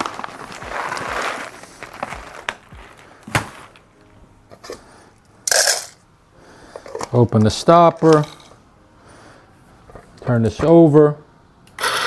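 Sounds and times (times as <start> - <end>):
coffee bag crinkling: 0.0 - 3.9.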